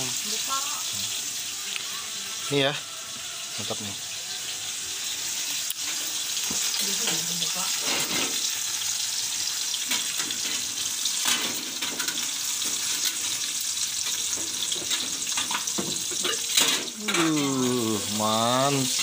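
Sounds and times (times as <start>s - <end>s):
food sizzling in a wok: 0.0s - 19.0s
metal spatula scraping wok: 4.2s - 17.5s.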